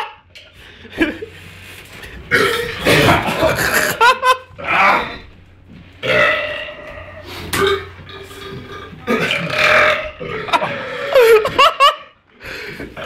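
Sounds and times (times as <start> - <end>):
laughter: 0.8 - 1.4, 3.0 - 4.6, 10.4 - 12.2
man belching loudly: 6.0 - 11.1.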